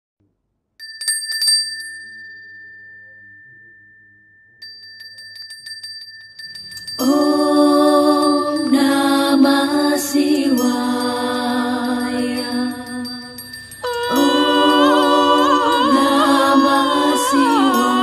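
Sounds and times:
hand bell ringing: 0:00.8 - 0:18.0
humming chant: 0:07.0 - 0:18.0.

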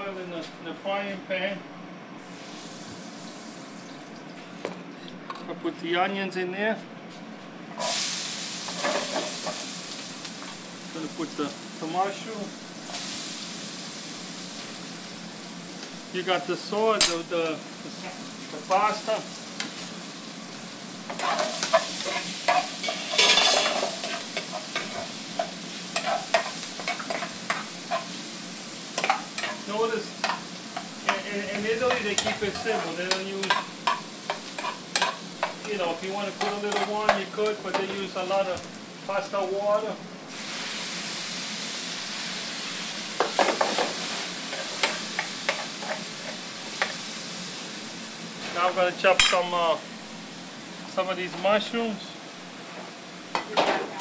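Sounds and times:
vegetables sizzling in frying pan: 0:02.2 - 0:04.0, 0:07.7 - 0:54.0
metal spoon scraping pan: 0:21.1 - 0:25.1, 0:26.0 - 0:28.1, 0:30.2 - 0:35.8, 0:36.4 - 0:37.2.

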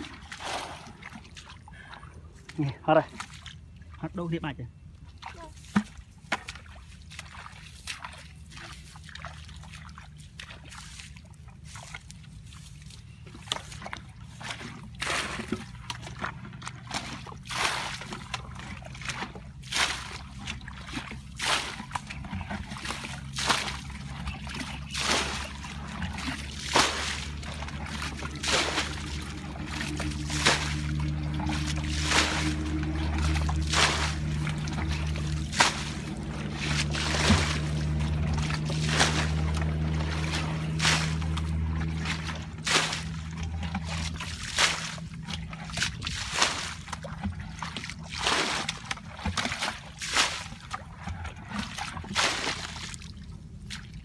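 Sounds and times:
bucket splashing muddy water: 0:00.0 - 0:04.4, 0:05.0 - 0:54.0.

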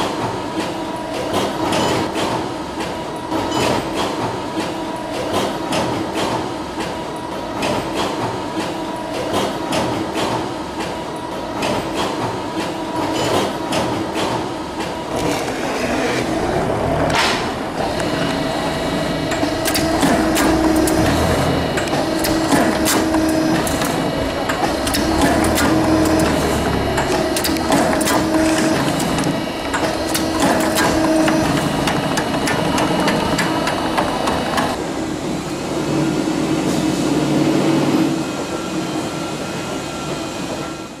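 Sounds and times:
steady machine hum: 0:14.4 - 0:41.0
machine clattering and clicking: 0:17.1 - 0:34.8.

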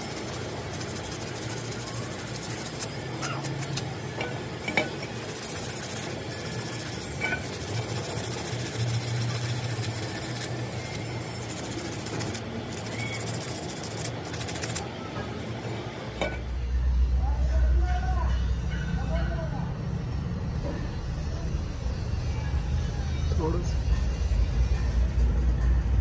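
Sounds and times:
brush scrubbing metal gear: 0:00.0 - 0:15.0
steady low hum: 0:00.0 - 0:17.8.

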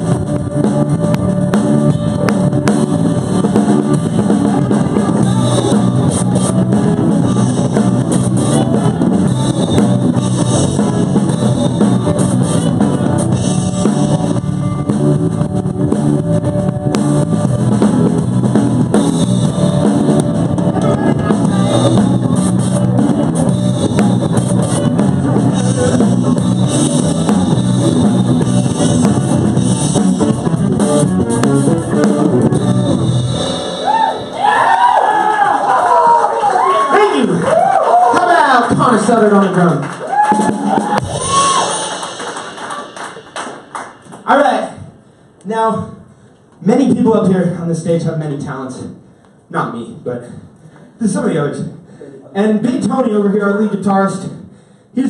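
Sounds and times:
electric guitar strummed: 0:00.0 - 0:34.4
drum kit: 0:00.0 - 0:35.4, 0:38.6 - 0:45.0.

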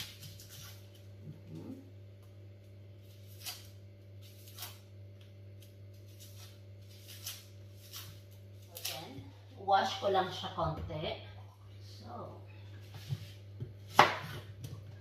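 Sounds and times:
knife scraping onion skin: 0:00.0 - 0:01.0, 0:03.0 - 0:05.0, 0:05.6 - 0:09.1
steady low hum: 0:00.0 - 0:15.0.

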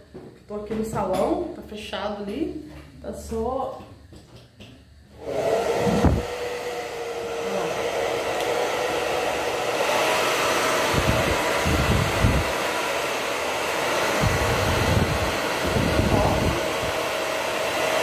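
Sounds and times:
hair dryer running: 0:05.1 - 0:18.0
wind noise on microphone: 0:05.7 - 0:06.4, 0:10.8 - 0:12.6, 0:14.0 - 0:17.0.

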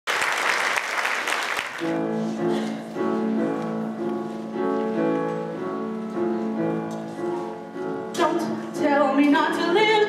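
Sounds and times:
audience applause: 0:00.1 - 0:02.0
piano playing sustained chords: 0:01.8 - 0:10.0.

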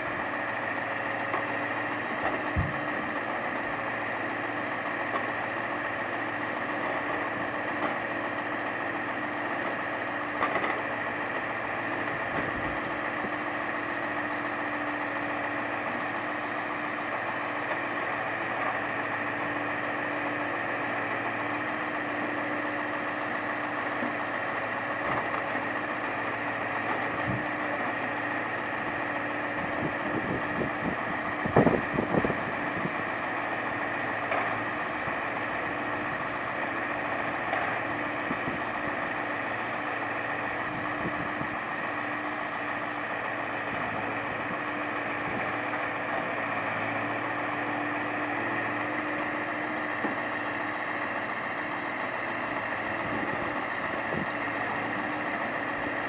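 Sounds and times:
truck engine running: 0:00.0 - 0:56.0.

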